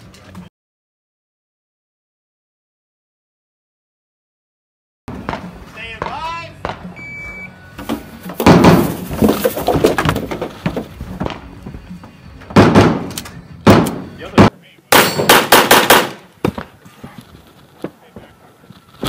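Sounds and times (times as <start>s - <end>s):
rifle shots: 14.9s - 16.3s.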